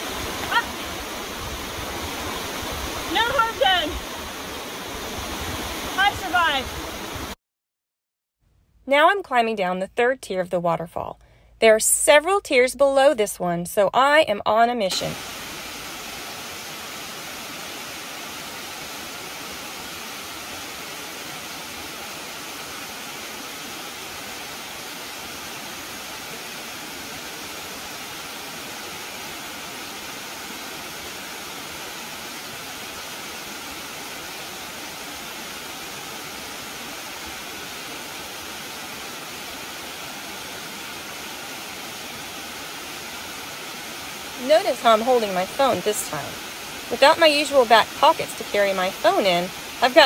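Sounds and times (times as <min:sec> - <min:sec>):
waterfall rushing over rocks: 0:00.0 - 0:07.4, 0:14.9 - 0:50.0.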